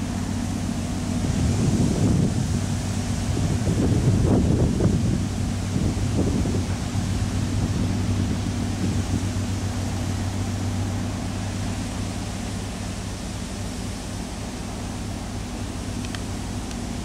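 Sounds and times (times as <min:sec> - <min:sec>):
ship engine hum: 0:00.0 - 0:17.0
light hiss: 0:04.9 - 0:17.0.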